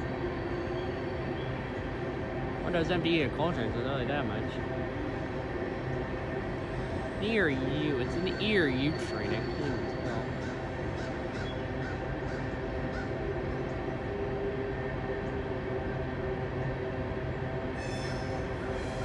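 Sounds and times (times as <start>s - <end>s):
diesel locomotive engine drone: 0.0s - 19.0s
crows cawing: 9.3s - 13.2s.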